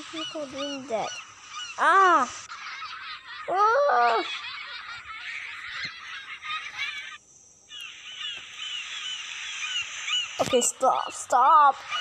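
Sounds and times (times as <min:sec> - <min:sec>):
children giggling and laughing: 0:02.4 - 0:07.2.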